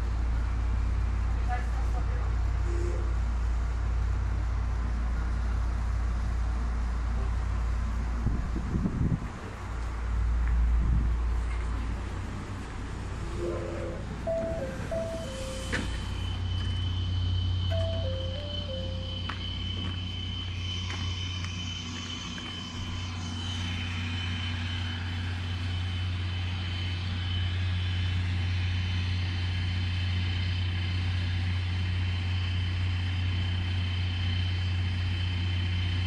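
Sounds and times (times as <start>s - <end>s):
train equipment low hum: 0.0s - 36.0s
high-pitched whine: 12.5s - 36.0s.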